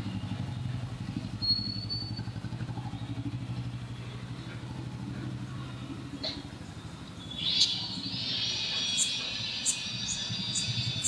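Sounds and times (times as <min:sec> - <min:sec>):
workshop machinery pulsing drone: 0:00.0 - 0:11.0
thin high whine: 0:07.2 - 0:11.0.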